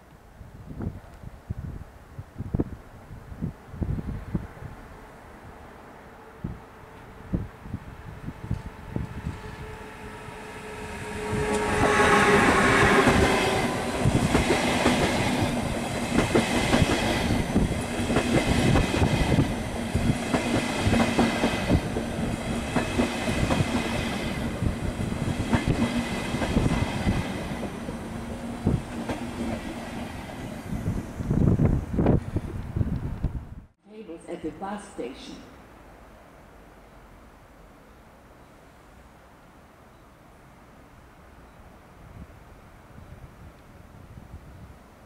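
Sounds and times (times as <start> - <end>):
electric locomotive whine: 3.8 - 33.5
train wheels clattering: 11.3 - 24.4.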